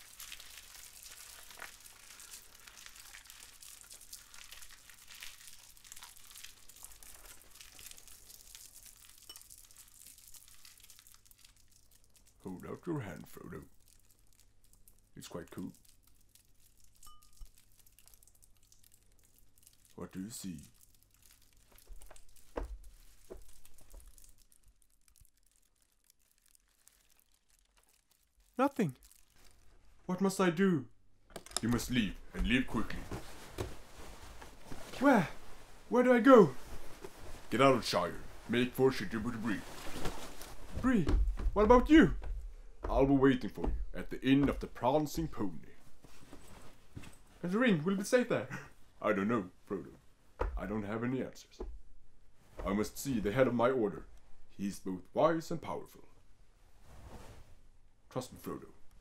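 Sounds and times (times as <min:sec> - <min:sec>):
crinkling crackles of foley fire: 0:00.0 - 0:30.3, 0:31.6 - 0:49.0
soft rustles and light knocks: 0:21.6 - 0:24.2, 0:31.6 - 0:35.9, 0:36.5 - 0:38.6, 0:39.3 - 0:44.8, 0:45.8 - 0:47.4, 0:56.7 - 0:57.6.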